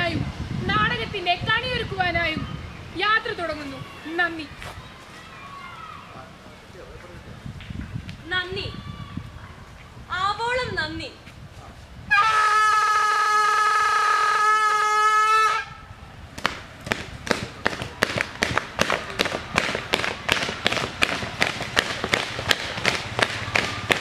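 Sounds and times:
train horn: 12.1s - 15.8s
rhythmic stamping of feet: 16.4s - 24.0s.

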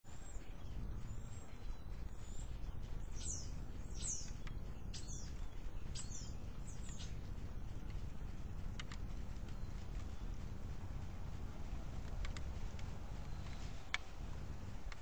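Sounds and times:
low background rumble: 0.0s - 15.0s
hummingbird chirps: 0.1s - 7.2s.

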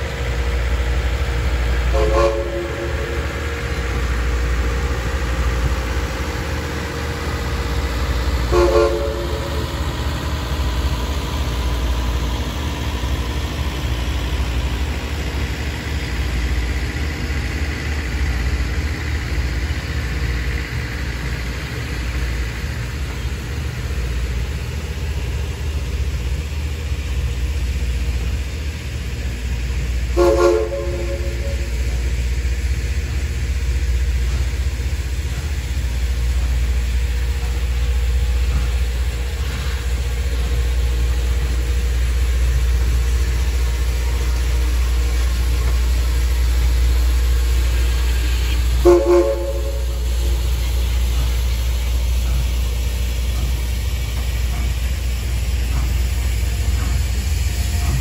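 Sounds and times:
steady low rumble: 0.0s - 58.0s
steam locomotive whistle: 1.9s - 3.4s, 8.4s - 9.8s, 30.1s - 32.0s, 48.1s - 50.4s.

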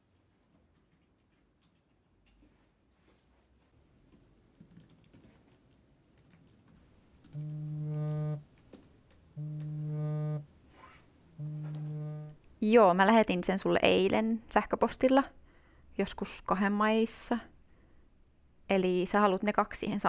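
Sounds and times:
keyboard typing: 4.6s - 10.4s, 11.4s - 12.4s
phone vibrating against desk: 7.4s - 8.4s, 9.4s - 10.5s, 11.4s - 12.4s.

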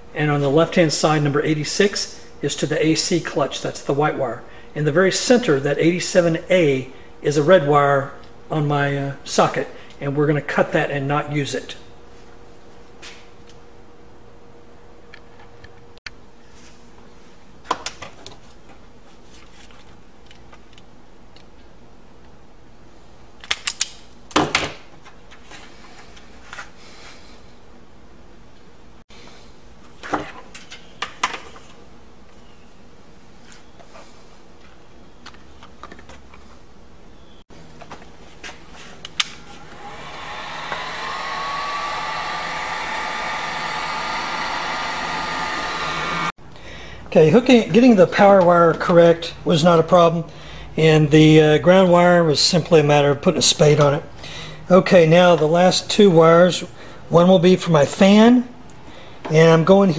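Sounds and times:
heat gun blower whining: 39.1s - 46.4s.

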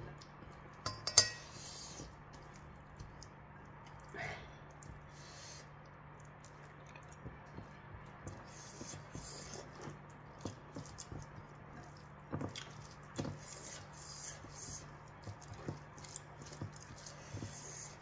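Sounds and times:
fingers squishing food in bowl: 0.0s - 5.1s, 5.7s - 18.0s
chewing and lip smacks: 2.3s - 8.4s.

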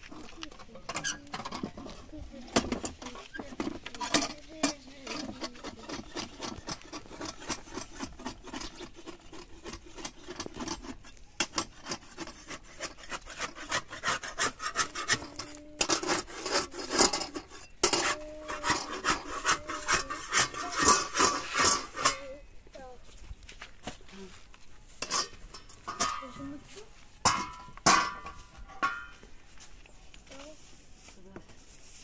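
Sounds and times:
metal spatula scraping griddle: 0.0s - 22.4s.

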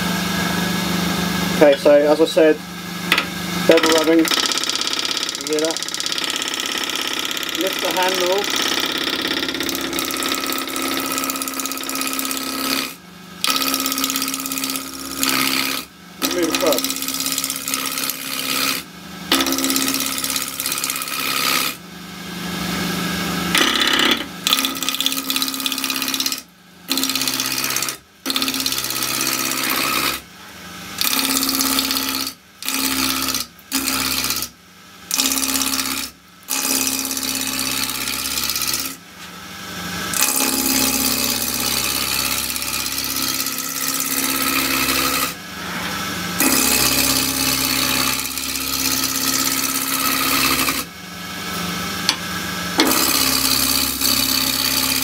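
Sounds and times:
lathe machine hum: 0.0s - 21.8s, 39.7s - 55.0s
gouge cutting wood on lathe: 3.7s - 21.8s, 23.5s - 30.2s, 31.0s - 34.5s, 35.1s - 39.0s, 40.1s - 50.9s, 52.8s - 55.0s.

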